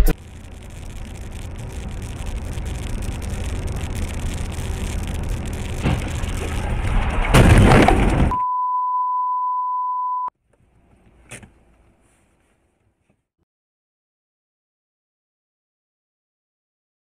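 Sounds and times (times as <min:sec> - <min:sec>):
road and engine noise: 0:00.0 - 0:08.3, 0:10.4 - 0:12.6
car crash with breaking: 0:05.5 - 0:08.4
steady high beep: 0:08.3 - 0:10.3.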